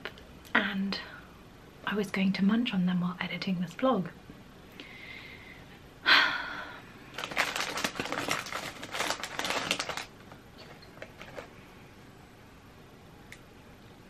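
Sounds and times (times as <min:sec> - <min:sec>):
biscuit crunch: 0:07.1 - 0:11.6.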